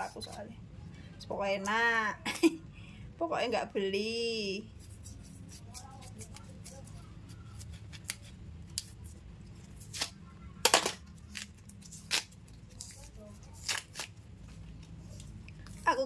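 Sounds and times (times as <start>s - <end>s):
low steady hum: 0.0s - 16.0s
knife scraping root skin: 4.8s - 10.2s, 11.2s - 14.2s
peel cracking and tearing: 4.8s - 15.8s.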